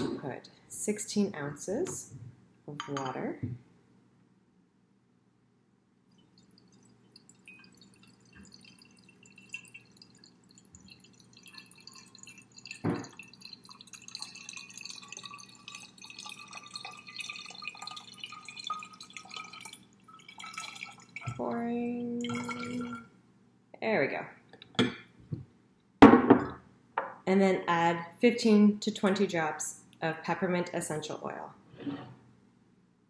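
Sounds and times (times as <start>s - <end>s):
water trickling into glass bottle: 6.1s - 23.1s.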